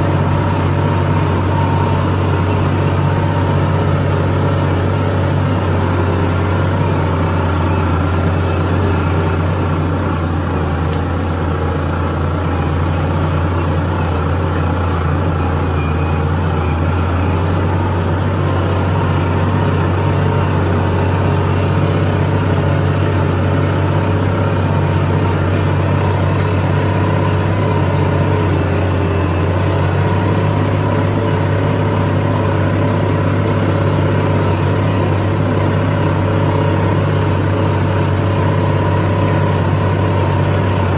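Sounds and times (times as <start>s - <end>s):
tractor diesel engine running: 0.0s - 40.9s.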